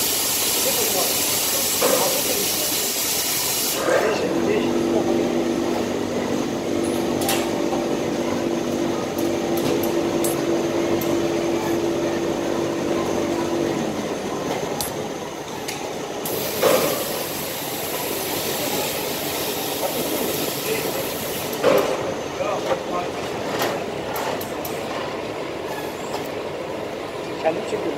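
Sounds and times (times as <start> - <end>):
steam hissing: 0.0 - 4.1, 16.2 - 21.6
machine hum: 3.6 - 24.2.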